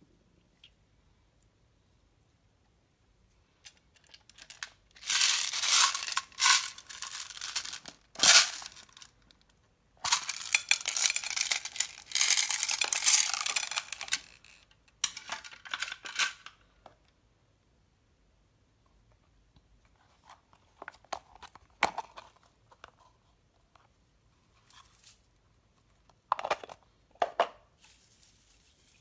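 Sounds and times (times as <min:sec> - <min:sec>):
beads clattering into a bowl: 0:03.6 - 0:09.1, 0:10.0 - 0:16.5
plastic beads rattling in a case: 0:03.6 - 0:09.3, 0:10.0 - 0:16.5.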